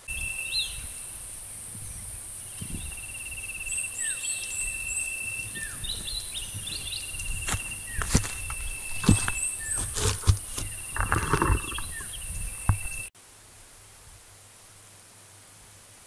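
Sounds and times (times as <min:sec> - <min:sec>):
birds chirping: 0:00.0 - 0:13.1
footstep: 0:05.4 - 0:13.1.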